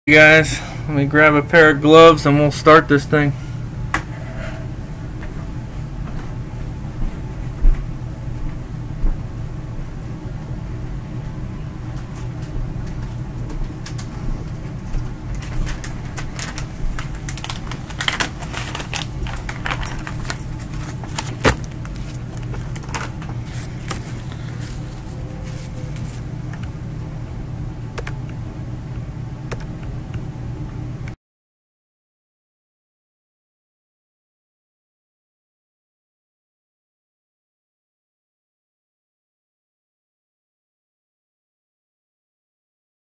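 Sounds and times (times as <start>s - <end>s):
low hum: 0.1s - 31.2s.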